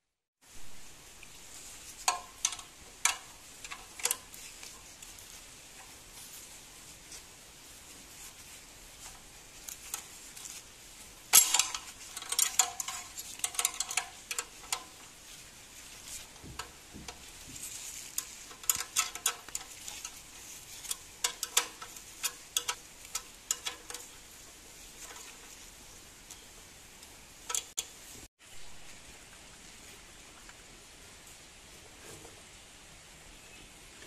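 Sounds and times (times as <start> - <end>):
spanner clinking on metal bolt: 11.4 - 14.9, 20.8 - 24.1.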